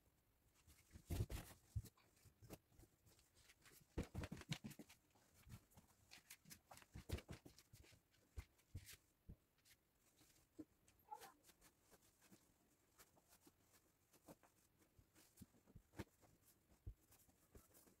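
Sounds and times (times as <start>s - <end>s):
bed sheets rustling: 0.5s - 18.0s.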